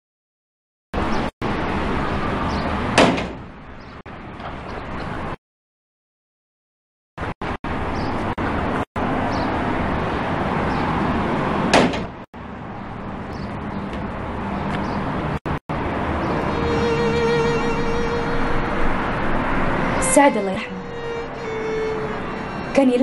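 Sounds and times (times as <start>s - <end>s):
sharp bang: 3.0s - 3.5s.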